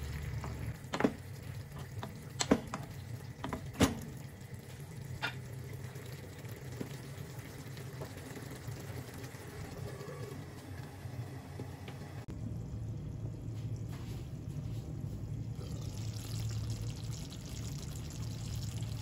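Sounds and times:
stew simmering in a wok: 0.0s - 13.1s
steady low hum: 0.0s - 19.0s.

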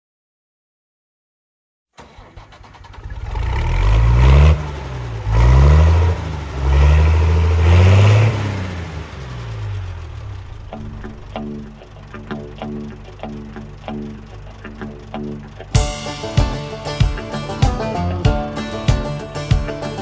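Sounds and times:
engine starting and revving: 2.0s - 15.8s.

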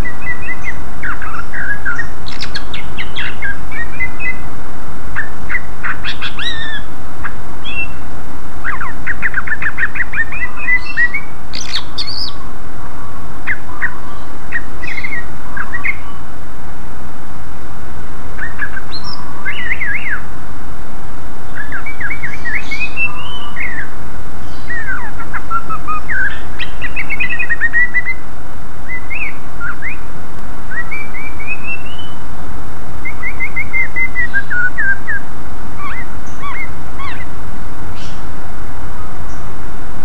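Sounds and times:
bird singing chirps and whistles: 0.0s - 4.4s, 5.2s - 6.9s, 7.6s - 8.0s, 8.6s - 12.4s, 13.5s - 16.2s, 18.4s - 20.2s, 21.5s - 28.2s, 28.9s - 30.1s, 30.7s - 32.2s, 33.0s - 37.3s
steady background noise: 0.0s - 40.0s.

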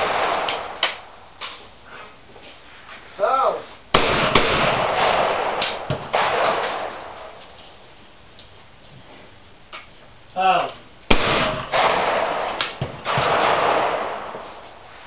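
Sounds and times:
shotgun shots echoing: 0.0s - 1.2s, 3.9s - 7.6s, 11.1s - 14.8s.

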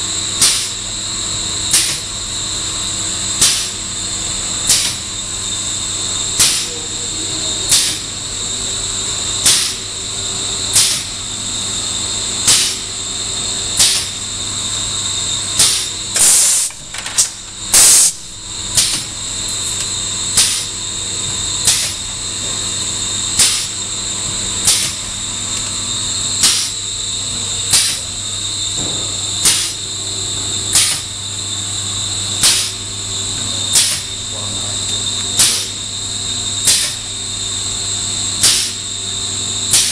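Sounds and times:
label machine humming and whining: 0.0s - 39.9s
sharp hiss-like bursts: 15.6s - 16.7s, 17.7s - 18.2s, 23.4s - 23.7s, 26.4s - 26.8s, 29.4s - 29.8s, 32.4s - 32.8s, 38.4s - 38.8s.

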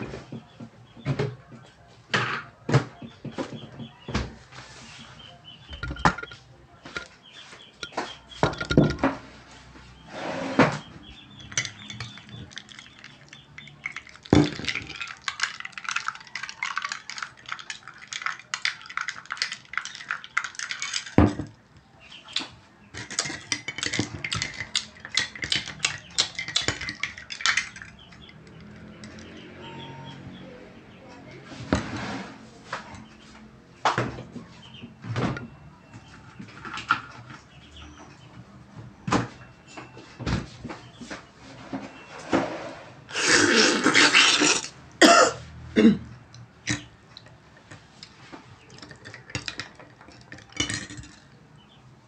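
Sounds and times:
kitchen things clattering: 2.1s - 9.5s, 10.3s - 29.6s, 33.9s - 42.6s, 46.6s - 51.8s
spoon clinking in ceramic mug: 11.4s - 21.4s, 23.0s - 29.2s, 48.7s - 51.2s.

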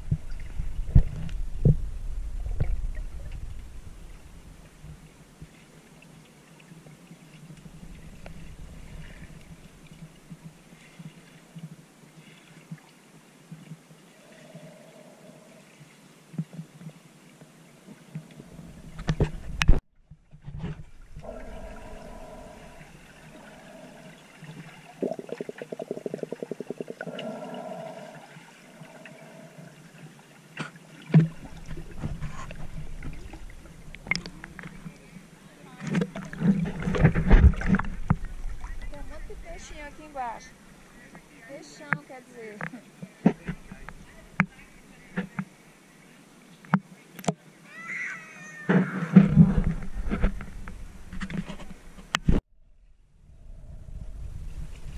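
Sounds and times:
muffled underwater rumble: 0.0s - 5.6s, 7.6s - 11.0s, 18.2s - 28.2s, 31.3s - 41.2s, 49.0s - 54.9s
rapid underwater clicks: 20.7s - 29.3s.

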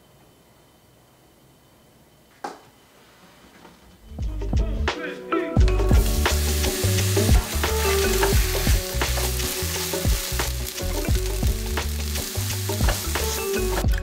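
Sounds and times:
onions sizzling in a frying pan: 5.9s - 13.9s.

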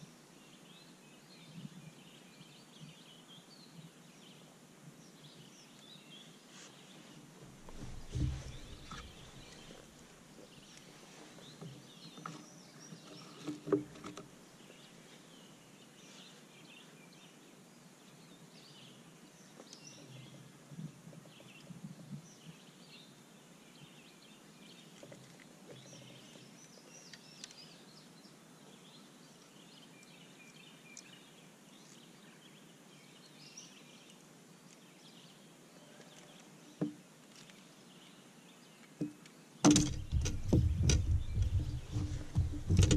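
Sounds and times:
sharp knocks: 39.0s - 42.9s
birds chirping and singing: 39.7s - 42.9s.

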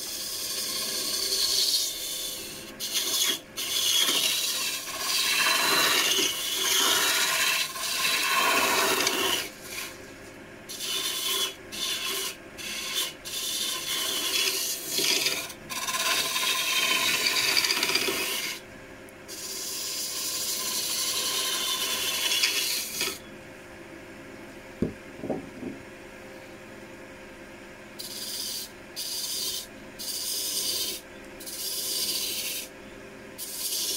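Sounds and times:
lathe tool cutting wood: 0.0s - 10.0s, 10.7s - 18.6s, 19.3s - 23.2s
lathe humming: 0.0s - 18.6s, 19.3s - 23.2s
knocks: 24.8s - 25.8s.

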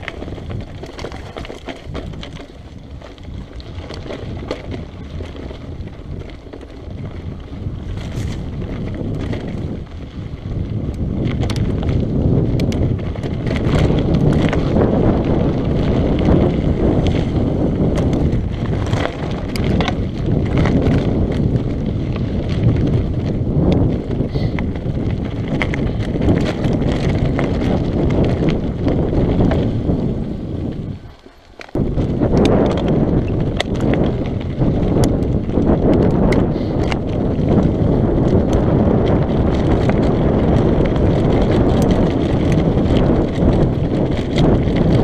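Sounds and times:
bike rattling and knocking: 0.0s - 45.0s
tyres rolling over gravel: 0.0s - 45.0s
wind buffeting microphone: 0.0s - 45.0s.

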